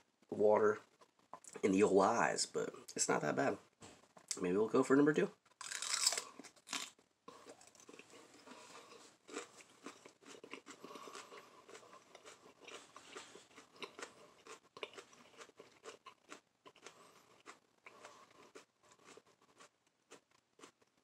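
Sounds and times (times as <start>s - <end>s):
crunching and chewing pepper: 5.5s - 21.0s.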